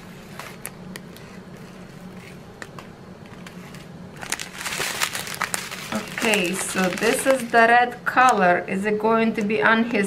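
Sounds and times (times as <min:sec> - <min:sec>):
low steady hum: 0:00.0 - 0:10.0
plastic bags crinkling: 0:04.2 - 0:07.8.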